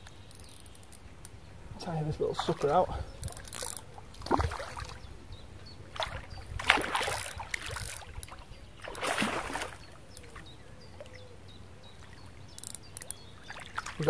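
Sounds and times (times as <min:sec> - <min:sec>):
fish splashing at water surface: 0:06.0 - 0:10.4.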